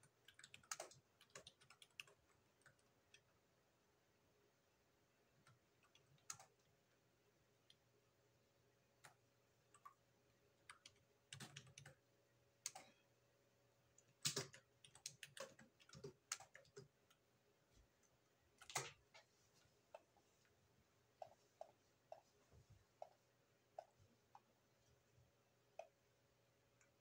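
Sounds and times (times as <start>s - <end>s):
keyboard typing: 0.0s - 3.4s, 5.4s - 6.9s, 8.9s - 10.0s, 10.6s - 13.0s, 13.9s - 17.3s, 18.0s - 19.2s.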